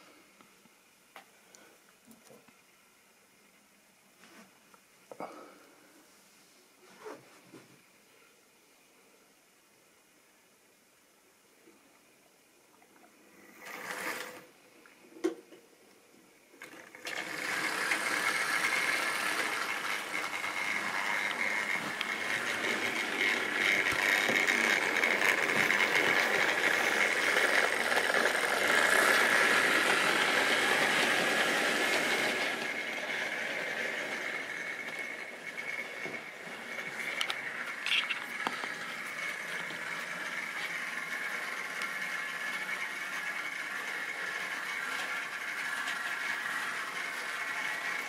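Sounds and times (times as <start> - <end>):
model train motor whirring: 13.6 - 14.4, 16.6 - 48.0
wheels clicking over rail joints: 16.6 - 33.0.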